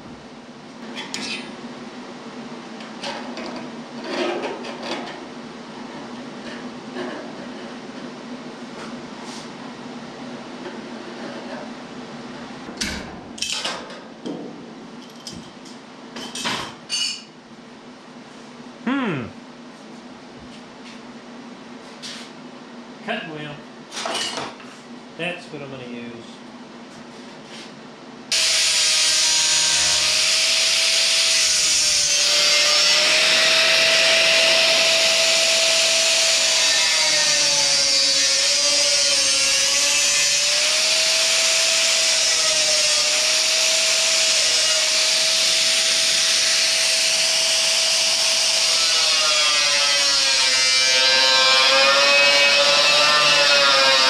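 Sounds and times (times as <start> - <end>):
angle grinder grinding steel: 28.3 - 54.0.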